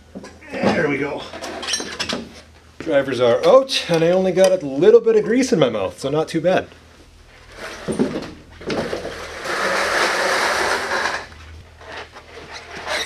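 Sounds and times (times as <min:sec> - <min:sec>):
metal scraping on concrete: 0:08.9 - 0:13.0.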